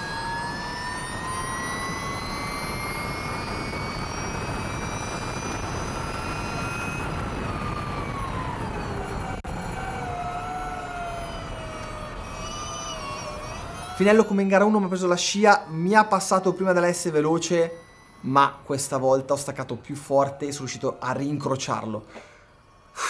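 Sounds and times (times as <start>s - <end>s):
electric motorcycle motor whine: 0.0s - 23.0s
wind rush: 1.1s - 10.7s.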